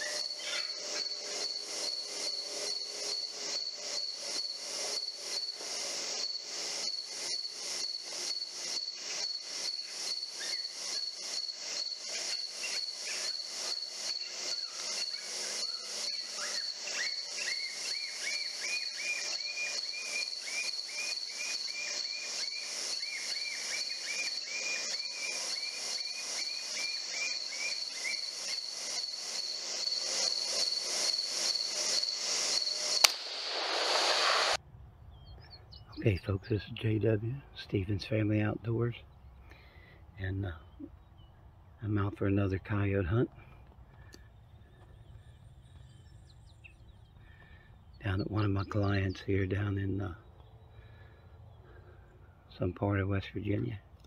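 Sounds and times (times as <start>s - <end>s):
insects trilling: 0.0s - 34.6s, 35.8s - 53.9s
lower quick insect chirps: 0.0s - 36.9s, 43.8s - 52.8s
sharp crack: 33.0s - 34.6s.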